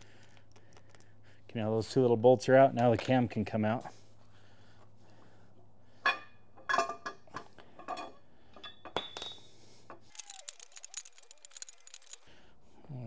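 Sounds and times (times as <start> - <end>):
metal camshaft clinking: 10.1 - 12.2.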